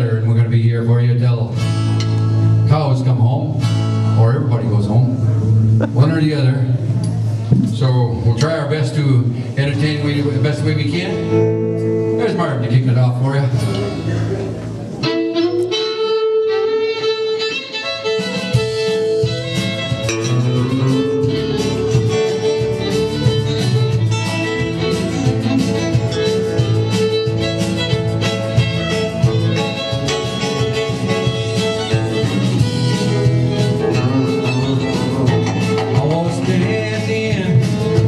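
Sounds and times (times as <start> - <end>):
acoustic guitar strumming: 0.0 - 7.8, 9.6 - 38.0
electric bass: 0.0 - 17.4, 18.2 - 38.0
bowed fiddle melody: 15.0 - 36.9.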